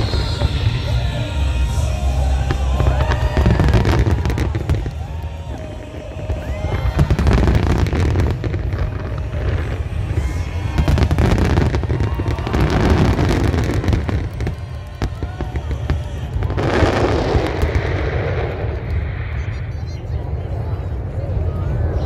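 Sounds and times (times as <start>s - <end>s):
fireworks booming: 0.0s - 21.1s
fireworks crackling: 0.0s - 22.0s.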